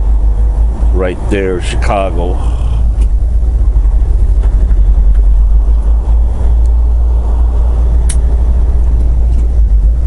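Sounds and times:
truck engine and road noise: 0:00.0 - 0:10.0
sharp click: 0:08.0 - 0:08.3.

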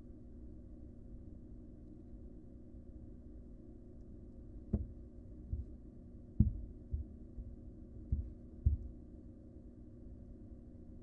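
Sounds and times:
steady low hum: 0:00.0 - 0:11.0
dull low thumps: 0:04.7 - 0:05.8, 0:06.4 - 0:09.0.

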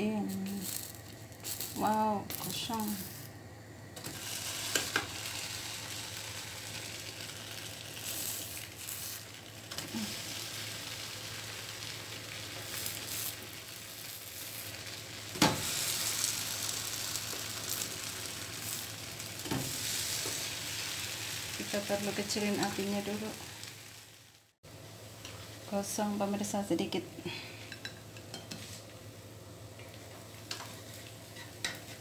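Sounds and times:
pancake batter sizzling: 0:04.0 - 0:26.5.

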